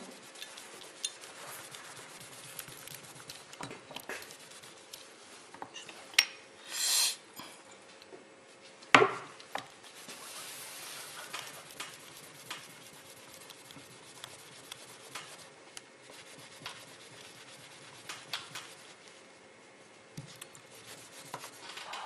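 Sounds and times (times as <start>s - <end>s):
tissue wiping metal disc: 0.0s - 5.4s, 9.8s - 19.3s, 20.3s - 22.0s
short hiss: 6.6s - 7.3s.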